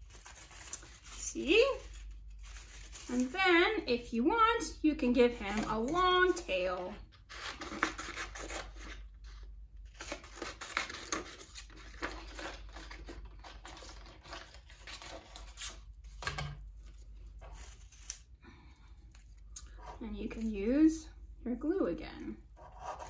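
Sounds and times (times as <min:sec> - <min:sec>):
scissors cutting paper: 0:00.1 - 0:03.4, 0:05.4 - 0:09.0, 0:09.8 - 0:16.3
paper rustling: 0:05.4 - 0:18.3.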